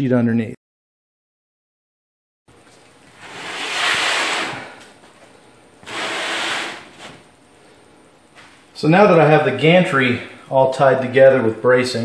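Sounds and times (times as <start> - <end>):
stone plate scraping across board: 3.2 - 4.8, 5.8 - 7.2.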